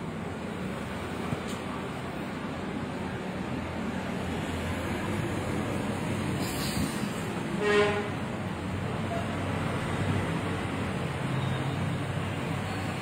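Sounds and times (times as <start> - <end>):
steady background noise: 0.0 - 13.0
vehicle horn toot: 7.6 - 8.2.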